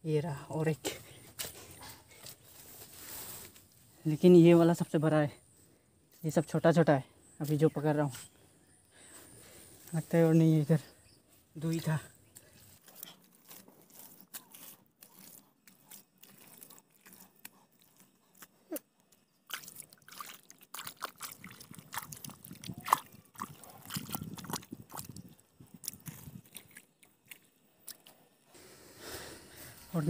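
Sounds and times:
rustling grass: 2.0s - 3.8s
hands digging in wet mud: 12.5s - 28.3s.

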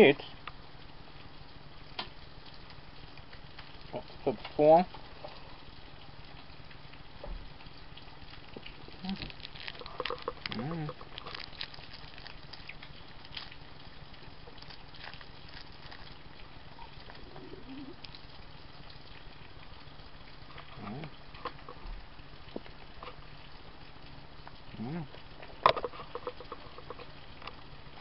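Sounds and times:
background hiss: 0.0s - 28.0s
wet sucking and slurping: 8.9s - 13.6s, 14.5s - 16.2s.

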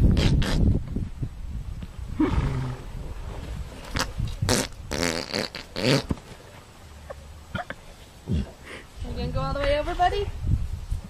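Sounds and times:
horse rasping noises: 2.2s - 6.7s.

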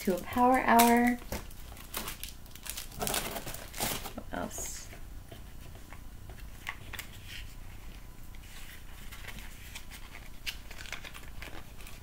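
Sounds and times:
packaging rustling and clicking: 0.0s - 4.2s, 9.0s - 12.0s.

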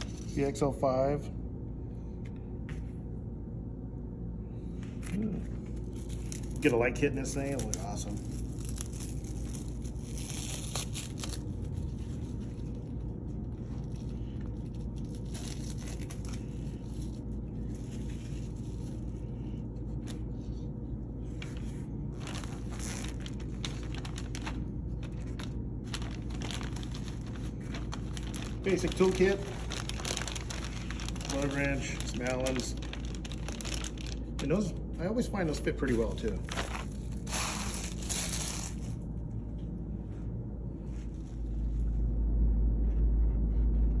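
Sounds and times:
steady low hum: 0.0s - 44.0s
plastic bags crinkling: 5.8s - 19.2s, 22.1s - 34.7s, 35.8s - 39.0s.

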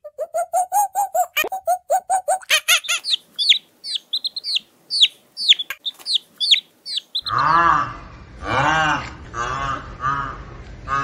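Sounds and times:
high falling chirps: 0.0s - 7.6s
rising and falling animal calls: 0.0s - 11.0s.

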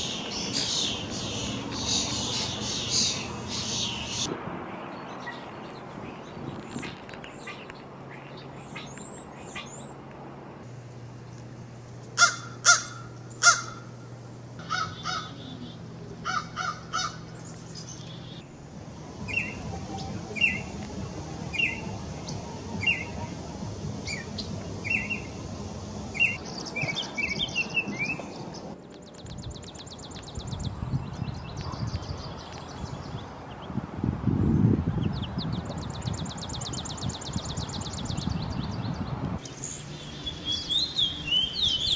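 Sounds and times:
small bird calling: 0.0s - 4.3s, 5.2s - 10.0s, 12.1s - 14.0s, 14.6s - 18.4s
crow cawing: 12.2s - 13.9s, 14.6s - 15.5s, 16.2s - 17.3s.

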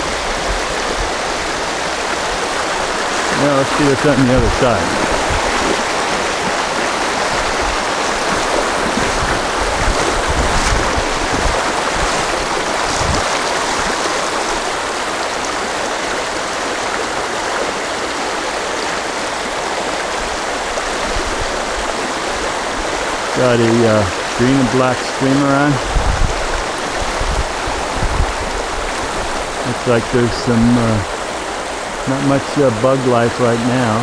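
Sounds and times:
river rushing over rocks: 0.0s - 34.0s
low bumps: 3.7s - 14.8s.

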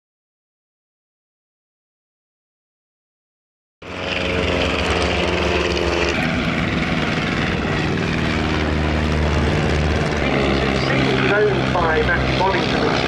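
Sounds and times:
propeller plane engines droning: 3.8s - 13.0s.

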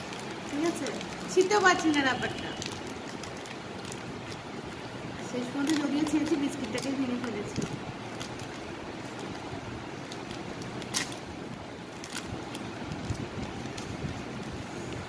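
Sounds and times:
plastic wrapper crinkling: 0.0s - 15.0s.

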